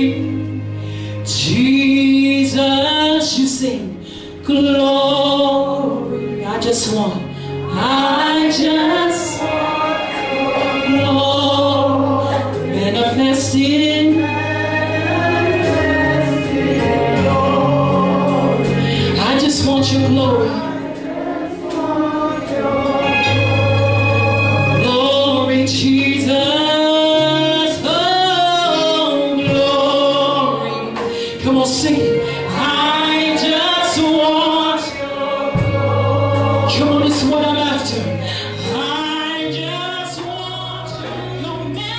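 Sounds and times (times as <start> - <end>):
instrumental accompaniment: 0.0 - 41.9
voices singing together: 7.6 - 31.2, 32.4 - 41.9.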